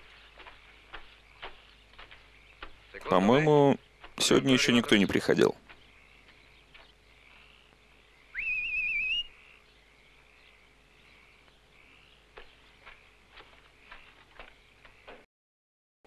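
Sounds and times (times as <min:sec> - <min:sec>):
soft footfalls on ground: 0:00.0 - 0:07.8, 0:11.4 - 0:15.2
chirping night ambience: 0:00.0 - 0:15.3
warbling whistle: 0:08.3 - 0:09.3.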